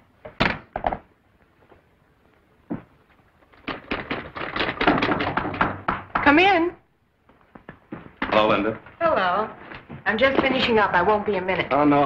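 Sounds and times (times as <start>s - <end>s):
knocks: 3.6s - 6.6s.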